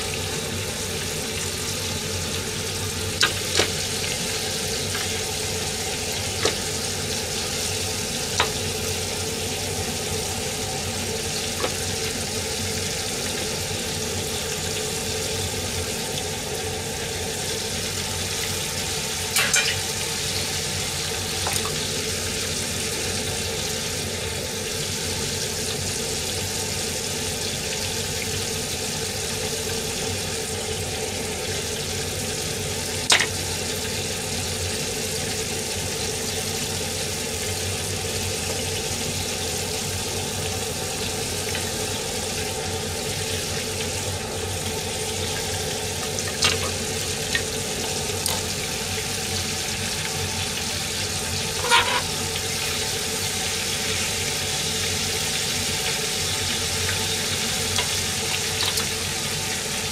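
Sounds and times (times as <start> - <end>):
oil sizzling in pans: 0.0 - 59.9
utensils clinking on metal pans: 19.3 - 20.0, 33.1 - 33.4, 51.5 - 52.2, 58.6 - 59.0.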